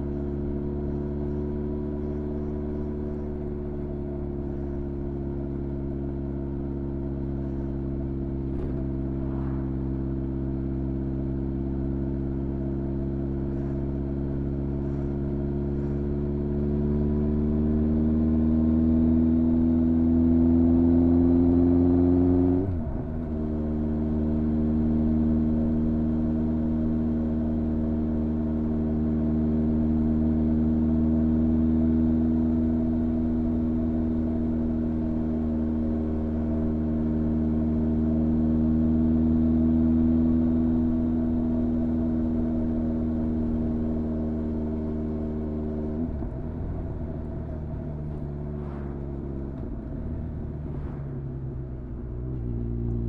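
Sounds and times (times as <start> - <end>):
motorcycle engine running: 0.0 - 20.6.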